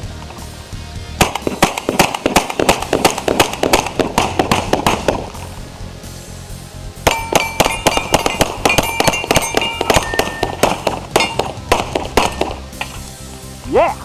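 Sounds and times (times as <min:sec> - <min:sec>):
rapid pistol fire: 0:01.2 - 0:05.4, 0:07.0 - 0:12.8
steel targets clanging: 0:07.0 - 0:13.1.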